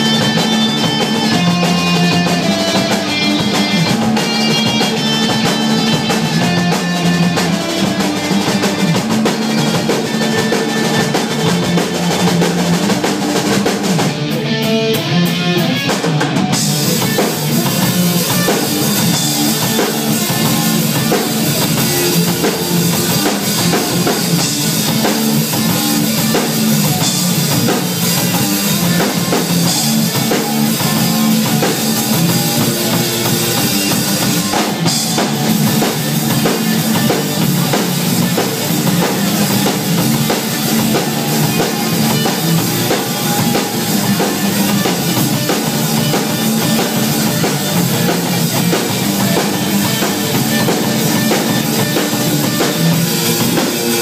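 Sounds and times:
drum kit: 0:00.0 - 0:54.0
electric guitars: 0:00.0 - 0:54.0.

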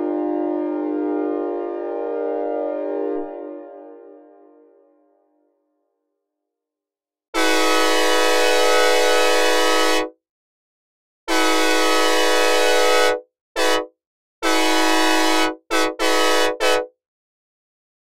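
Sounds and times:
locomotive air horn blasts: 0:00.0 - 0:04.8, 0:07.4 - 0:10.1, 0:11.3 - 0:16.9.

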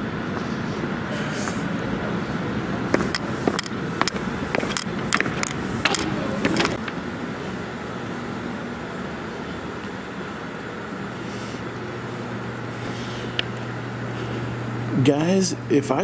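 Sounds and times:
steady low hum: 0:00.0 - 0:16.0
footsteps going down stairs: 0:02.4 - 0:06.9.

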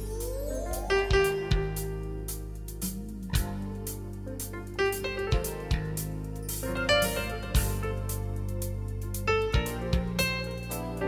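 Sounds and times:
plucked and keyed melody notes: 0:00.0 - 0:11.0
sustained bass: 0:00.0 - 0:11.0
drum hits: 0:02.9 - 0:03.6.

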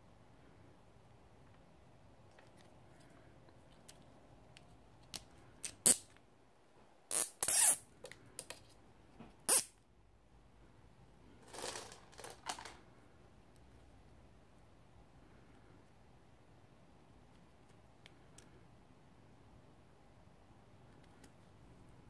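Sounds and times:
plastic rustling: 0:11.4 - 0:12.8.

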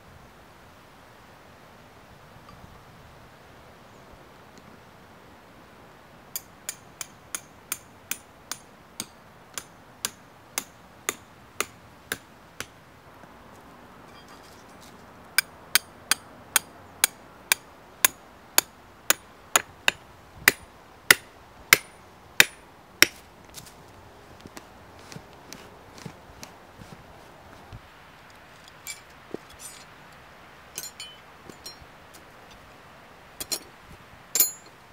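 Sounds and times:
hammer striking iron stake: 0:06.4 - 0:12.7, 0:15.4 - 0:23.2, 0:34.4 - 0:34.7.

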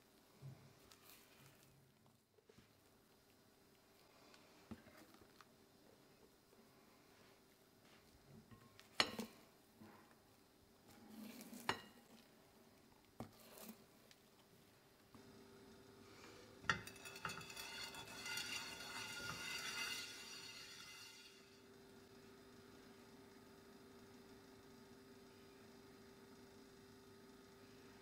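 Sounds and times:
spatula folding batter in bowl: 0:13.1 - 0:13.9, 0:16.3 - 0:21.5
oil sizzling in hot pan: 0:16.3 - 0:21.8.

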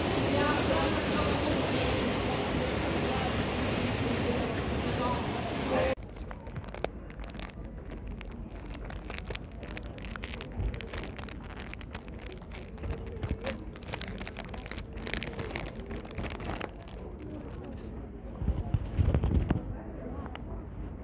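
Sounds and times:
plastic wrapper crinkling: 0:06.0 - 0:19.6.

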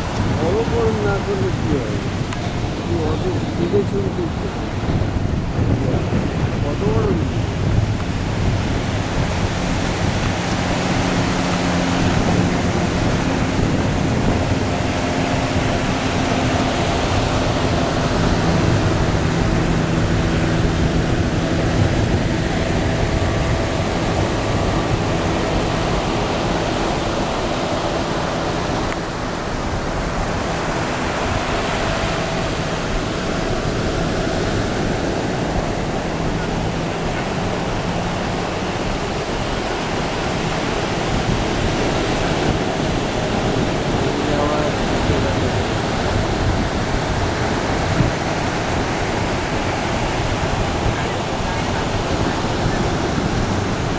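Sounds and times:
speedboat engine humming: 0:00.0 - 0:53.9
surf breaking on beach: 0:00.0 - 0:53.9.

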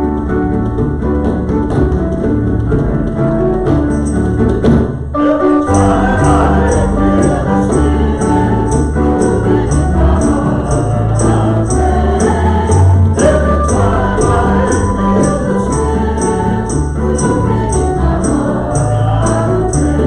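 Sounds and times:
hand drums: 0:00.0 - 0:05.1, 0:05.7 - 0:20.0
keyboard playing: 0:00.0 - 0:20.0
women singing: 0:05.4 - 0:20.0
high percussive beat: 0:05.7 - 0:20.0.

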